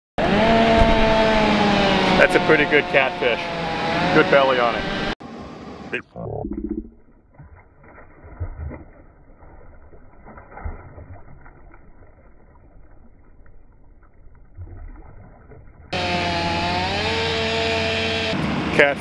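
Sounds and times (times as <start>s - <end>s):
water sloshing: 6.6s - 16.0s
fish splashing in water: 7.1s - 16.0s.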